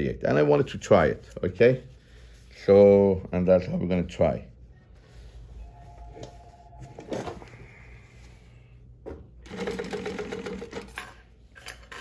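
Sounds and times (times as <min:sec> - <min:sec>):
sewing machine stitching: 0:09.4 - 0:11.1.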